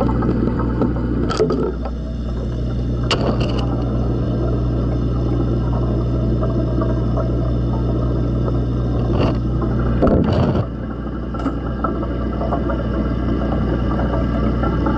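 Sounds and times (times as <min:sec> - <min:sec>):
aquarium pump hum: 0:00.0 - 0:14.9.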